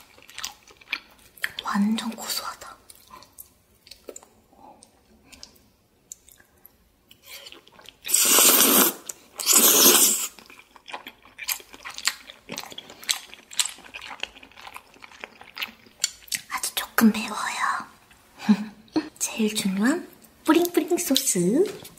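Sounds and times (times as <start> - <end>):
close chewing and lip smacks: 0.0 - 1.7, 2.6 - 8.1, 10.4 - 16.8
loud noodle slurps: 8.0 - 10.5.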